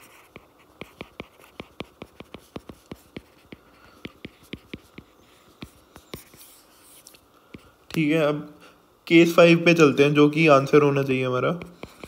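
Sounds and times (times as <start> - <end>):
stylus tapping on screen: 0.3 - 6.4.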